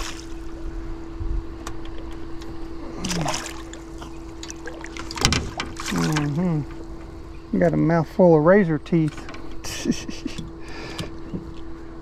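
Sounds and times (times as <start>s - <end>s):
steady hum: 0.0s - 12.0s
handling knocks and rustles: 1.6s - 7.8s.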